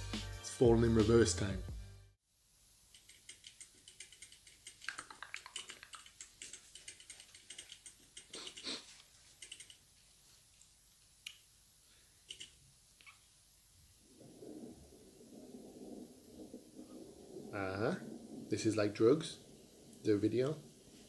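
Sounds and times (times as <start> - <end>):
fingers tapping touchscreen: 3.0 - 8.8, 9.4 - 9.8.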